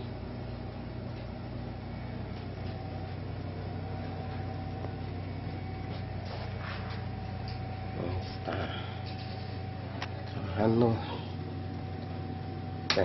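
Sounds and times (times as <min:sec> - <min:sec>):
low background hum: 0:00.0 - 0:13.0.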